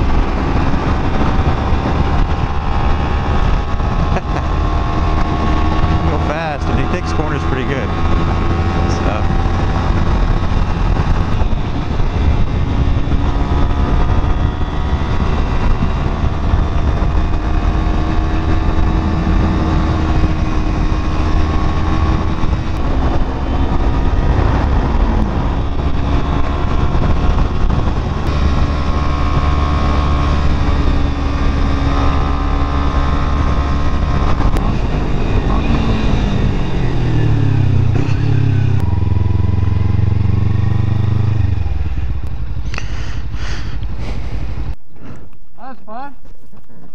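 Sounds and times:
motorcycle engine running: 0.0s - 44.9s
wind rumble on microphone: 0.0s - 45.5s.

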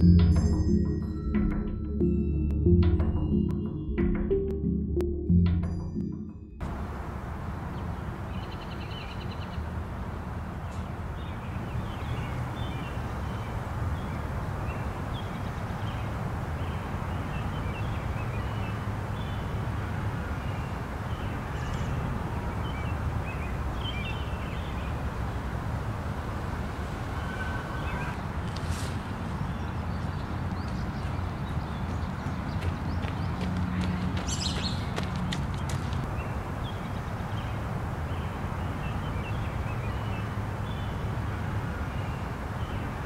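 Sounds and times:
small birds chirping: 27.2s - 41.2s.

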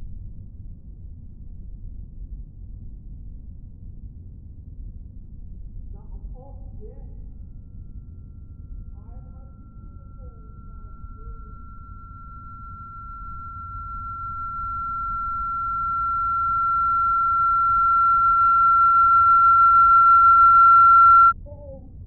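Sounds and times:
faint low rumble: 0.0s - 22.0s
high-pitched electronic tone: 8.0s - 21.4s.

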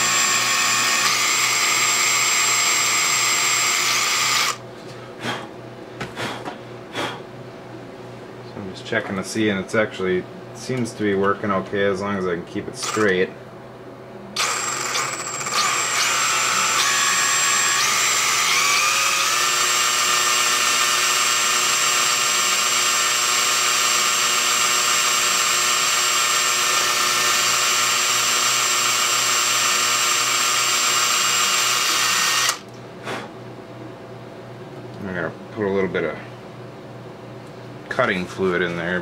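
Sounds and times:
electric drill motor whine: 0.0s - 4.6s, 12.8s - 13.2s, 14.4s - 32.6s.

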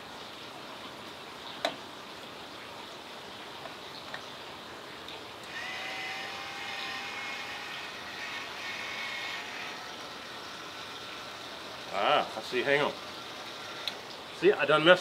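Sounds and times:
rotisserie motor whine: 5.4s - 14.5s.

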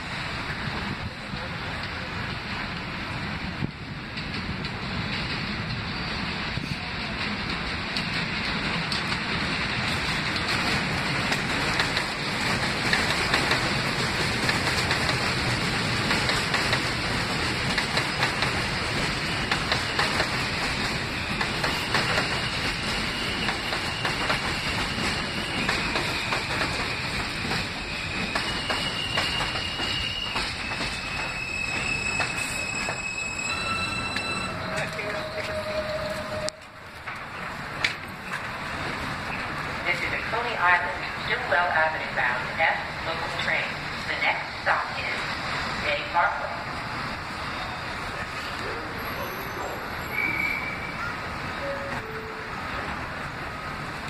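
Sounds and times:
train wheels clattering on rails: 0.0s - 41.8s.

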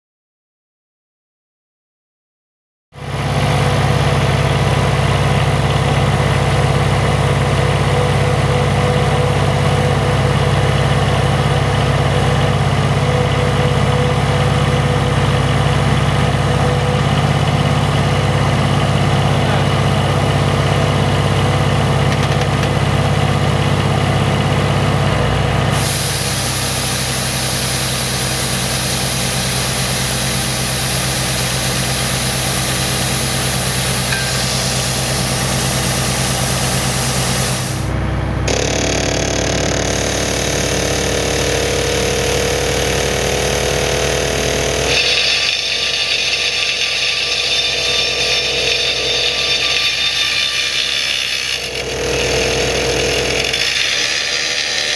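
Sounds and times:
hydraulic rock drill running: 3.0s - 54.9s
drill boring into rock: 25.8s - 37.9s, 38.5s - 54.9s.

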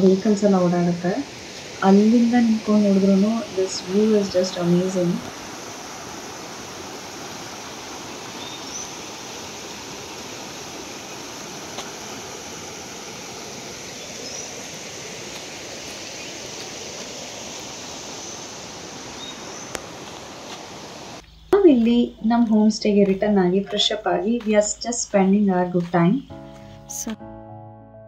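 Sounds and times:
stream rushing over stones: 0.0s - 21.2s.

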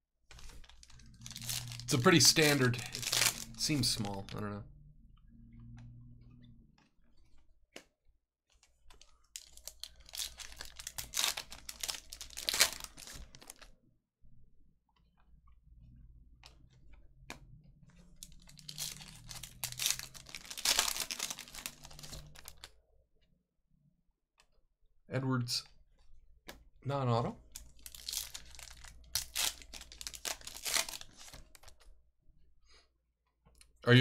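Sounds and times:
wrapper crinkling and tearing: 0.3s - 4.4s, 8.9s - 13.7s, 18.2s - 22.7s, 27.5s - 31.8s.

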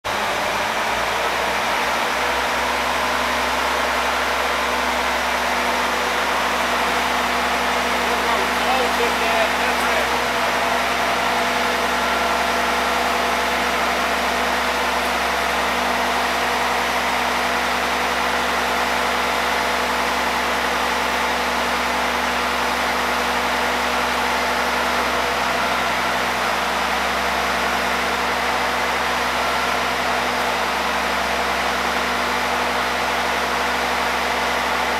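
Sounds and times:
machinery droning: 2.6s - 18.9s.

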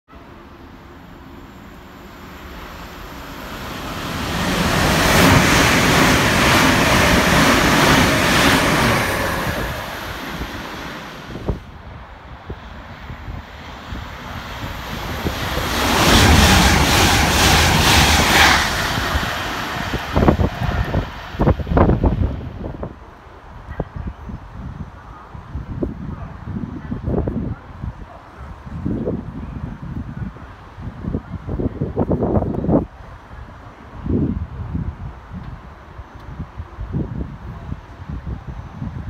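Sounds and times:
train rushing past: 0.2s - 23.0s
wind buffeting microphone: 3.3s - 39.0s
train wheels clattering on rails: 15.0s - 21.6s.

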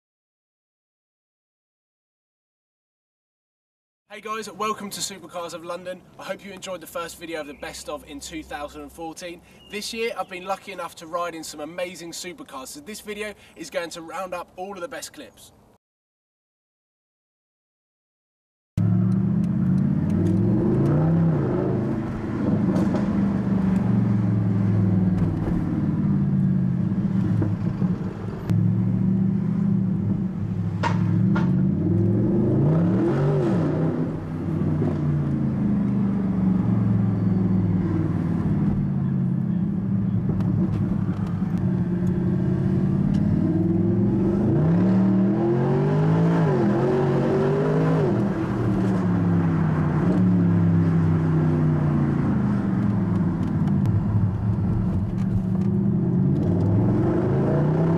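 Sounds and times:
car engine revving from inside: 18.8s - 25.8s, 28.5s - 38.8s, 41.6s - 49.2s, 52.0s - 57.9s.

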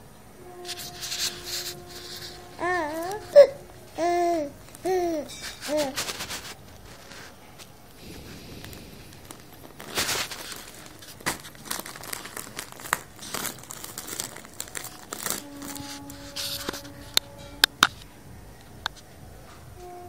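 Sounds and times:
steady held tone: 0.0s - 10.2s, 14.8s - 20.0s
rustling crinkling handling noise: 0.5s - 20.0s.

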